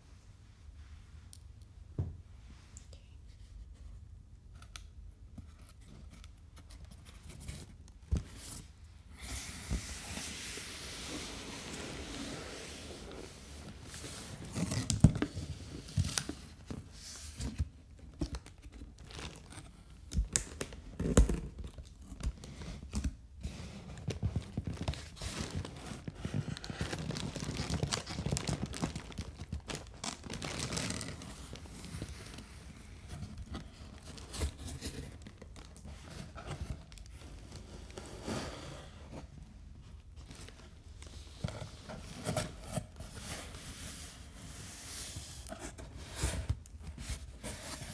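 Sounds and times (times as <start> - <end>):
plastic packaging crinkling: 24.4 - 32.4.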